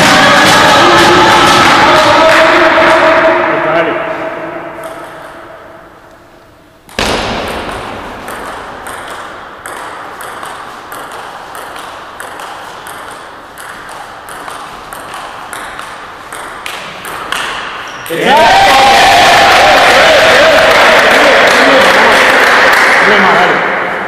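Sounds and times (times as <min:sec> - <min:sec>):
table tennis ball clicking: 0:06.9 - 0:17.7.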